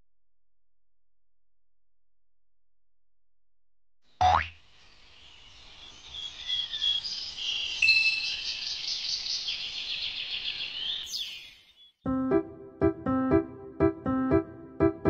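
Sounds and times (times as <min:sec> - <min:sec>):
small birds twittering: 0:04.6 - 0:12.0
piano notes: 0:12.1 - 0:15.0.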